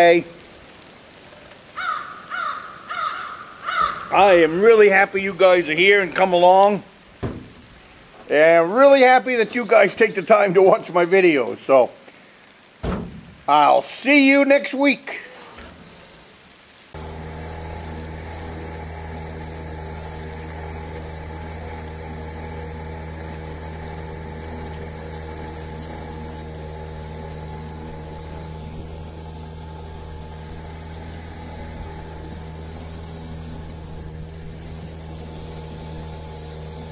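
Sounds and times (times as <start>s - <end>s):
small boat motor running: 3.7s - 10.8s, 16.4s - 36.9s.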